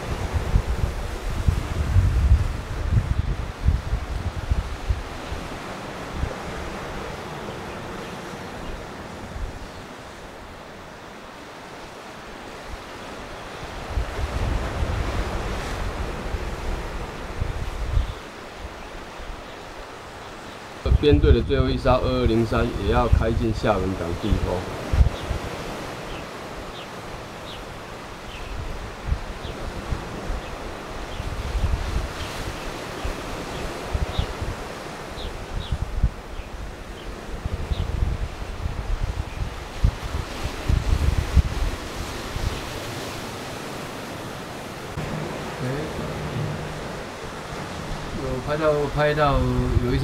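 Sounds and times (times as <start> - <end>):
wind buffeting microphone: 0.0 - 10.4, 12.6 - 19.4, 20.8 - 50.0
sea waves: 0.0 - 50.0.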